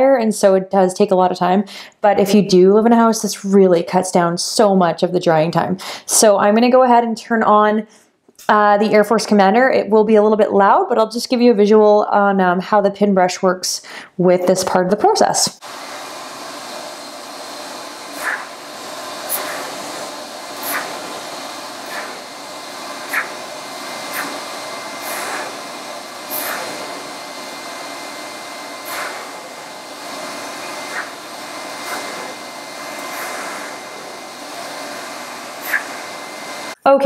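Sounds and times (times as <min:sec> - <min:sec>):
pet dryer blowing: 0:15.1 - 0:36.8
short swishes: 0:18.1 - 0:18.5, 0:19.3 - 0:21.2, 0:21.8 - 0:22.2, 0:23.0 - 0:25.6, 0:26.3 - 0:27.0, 0:28.8 - 0:29.4, 0:30.6 - 0:31.1, 0:31.8 - 0:32.3, 0:35.6 - 0:36.0.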